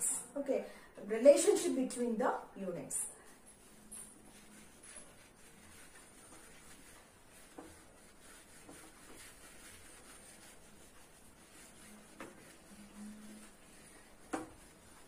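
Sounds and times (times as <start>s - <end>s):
duster rubbing whiteboard: 4.2s - 15.0s.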